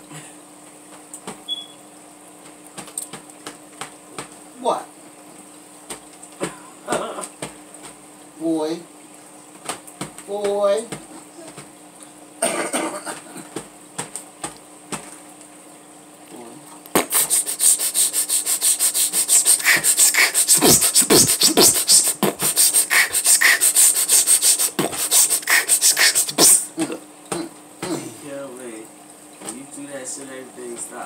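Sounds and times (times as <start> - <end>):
hands scratching a comforter: 17.0 - 26.6.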